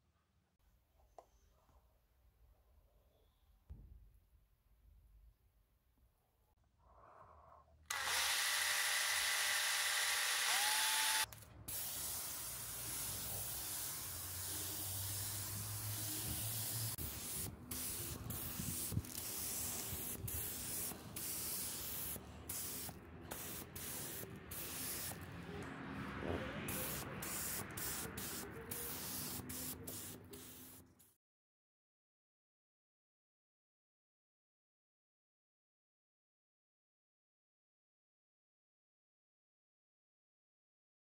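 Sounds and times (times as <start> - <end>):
paint spray gun hissing: 7.9 - 25.2, 26.7 - 30.8.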